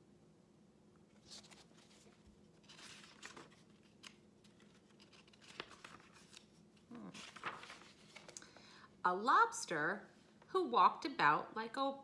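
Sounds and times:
low room hum: 0:00.0 - 0:12.0
paper pages rustling: 0:01.1 - 0:08.7.

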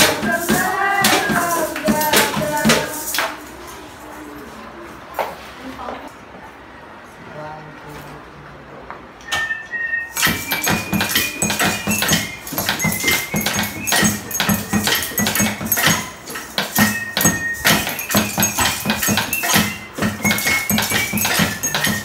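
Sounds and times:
homemade percussion knocks and clicks: 0:00.0 - 0:03.4, 0:10.1 - 0:22.0
high piping melody: 0:09.2 - 0:22.0.

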